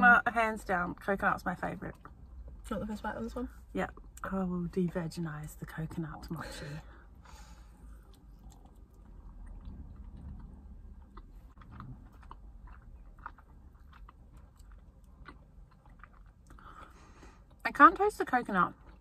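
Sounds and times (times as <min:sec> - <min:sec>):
low steady hum: 0:00.0 - 0:19.0
quiet chewing: 0:00.8 - 0:02.7, 0:05.6 - 0:18.1, 0:18.7 - 0:19.0.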